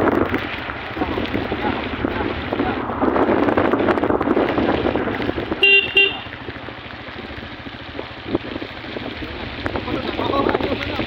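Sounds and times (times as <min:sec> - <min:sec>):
wind rushing: 0:00.0 - 0:05.9
wet road noise: 0:00.0 - 0:11.0
vehicle horn beeps: 0:05.6 - 0:06.3.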